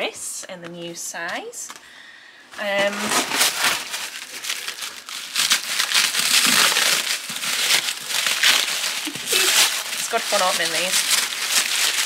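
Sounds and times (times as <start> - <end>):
paper wrapping crinkling: 2.6 - 12.0.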